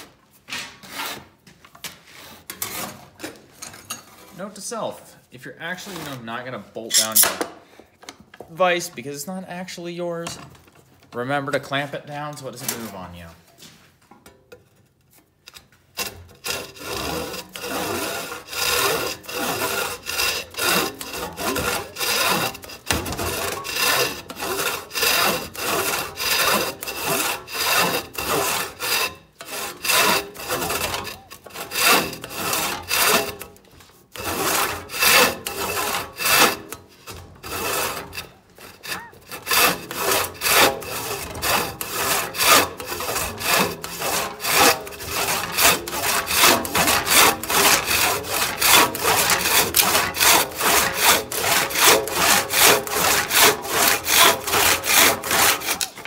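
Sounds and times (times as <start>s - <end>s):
handsaw cutting wood: 5.8s - 7.4s, 16.0s - 56.0s.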